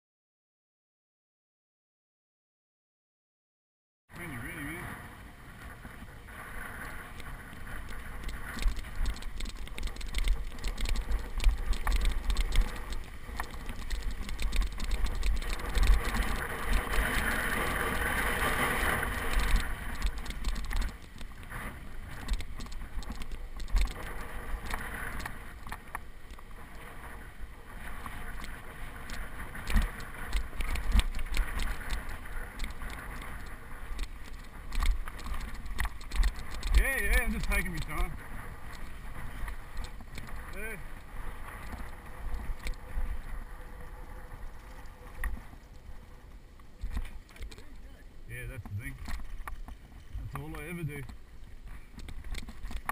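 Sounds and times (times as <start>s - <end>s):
bike tyres rolling over dirt: 4.2s - 52.9s
wind on microphone: 4.3s - 52.9s
bike rattling and knocking: 6.8s - 26.8s, 27.8s - 42.9s, 48.9s - 52.9s.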